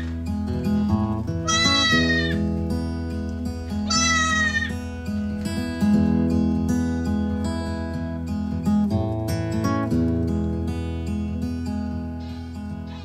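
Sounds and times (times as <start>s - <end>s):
goat bleating: 1.4s - 2.5s, 3.8s - 4.9s.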